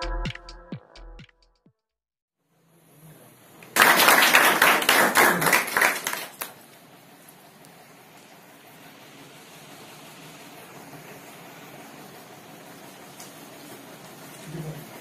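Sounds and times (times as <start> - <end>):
group of people clapping: 3.6 - 6.6.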